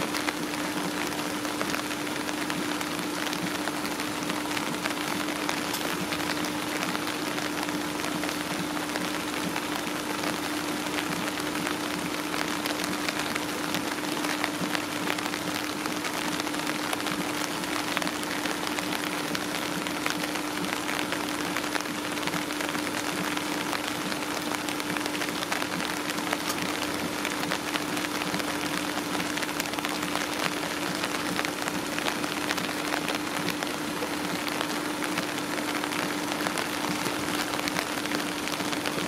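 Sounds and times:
rain pattering: 0.0s - 39.0s
steady hum: 0.0s - 39.0s.

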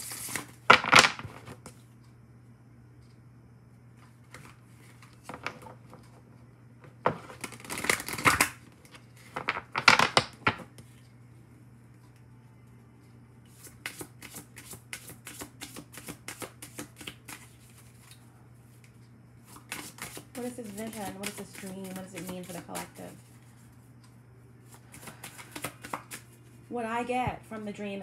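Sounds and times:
cards being shuffled: 0.0s - 1.0s, 7.2s - 8.6s, 13.5s - 18.2s, 18.8s - 23.7s, 24.6s - 26.6s.

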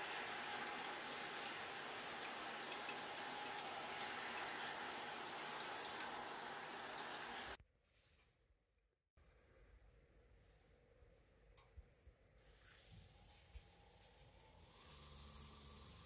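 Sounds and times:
small water drips: 0.0s - 7.6s
mist nozzles spraying hiss: 14.6s - 16.0s.

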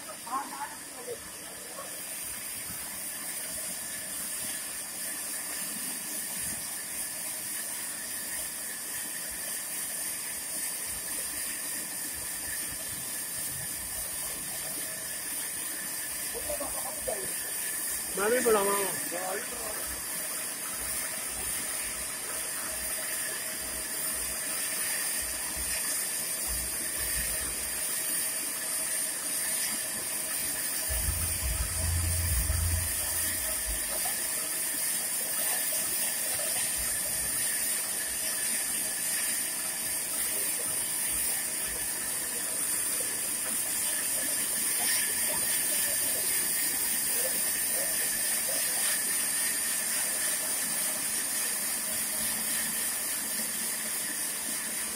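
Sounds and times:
low rumble: 30.9s - 34.0s.

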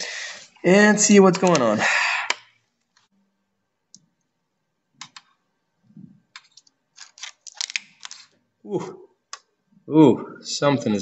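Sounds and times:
plastic laptop parts clicking: 1.3s - 1.6s, 6.4s - 8.3s.

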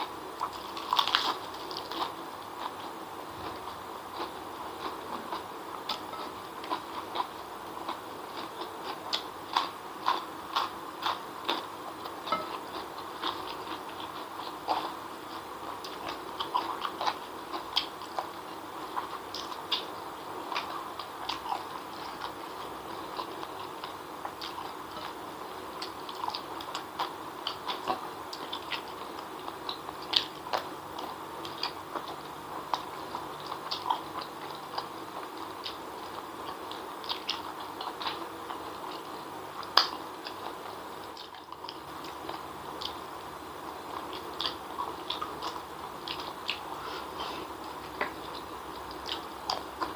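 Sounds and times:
steady background noise: 0.0s - 49.9s
wet chewing and lip smacking: 25.8s - 43.0s, 43.9s - 49.9s.

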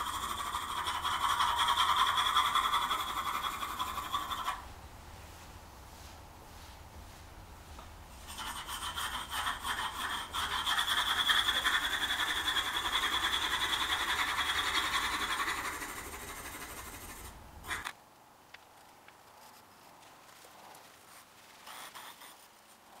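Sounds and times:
pencil scratching on paper: 0.0s - 4.6s, 8.2s - 17.8s, 21.6s - 22.7s.

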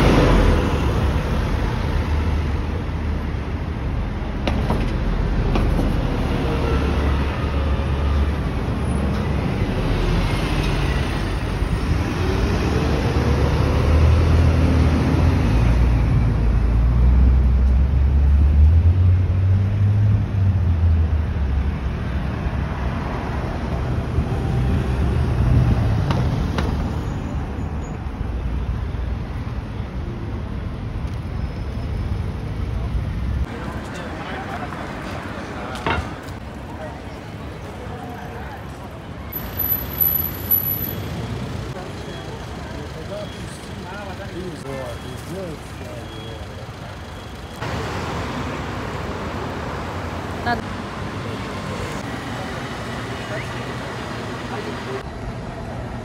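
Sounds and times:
vehicles passing: 0.0s - 56.0s.

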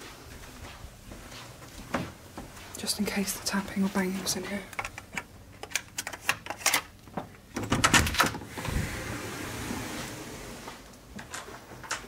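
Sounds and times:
door handle clatter and thud: 7.6s - 8.4s
rushing noise of door opening: 7.6s - 11.7s.

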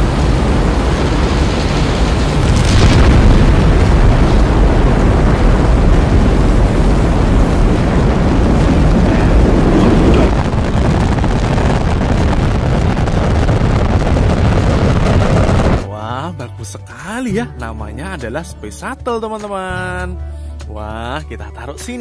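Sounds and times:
rocket engines rumbling: 0.0s - 15.9s.

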